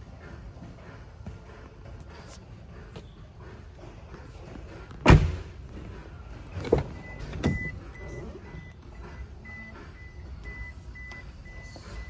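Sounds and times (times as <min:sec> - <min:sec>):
truck door clunks: 0:04.9 - 0:05.6, 0:06.5 - 0:07.8
high electronic beep: 0:07.0 - 0:12.0.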